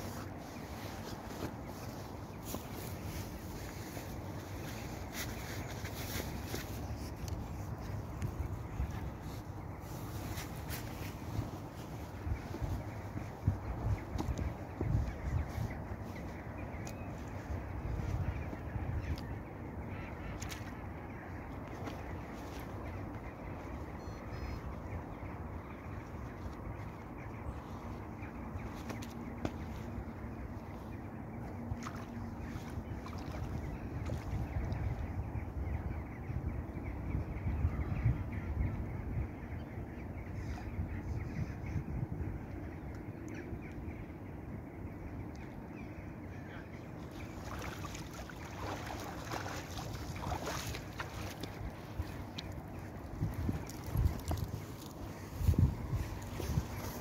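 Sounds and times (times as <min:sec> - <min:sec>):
water sloshing and splashing: 0:28.6 - 0:35.0, 0:47.0 - 0:57.0.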